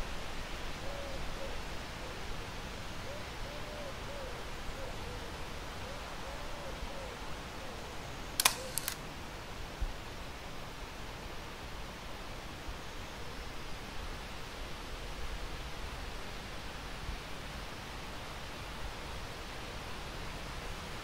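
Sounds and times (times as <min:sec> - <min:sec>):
steady outdoor hiss: 0:00.0 - 0:21.0
camera shutter clicks: 0:08.4 - 0:09.0.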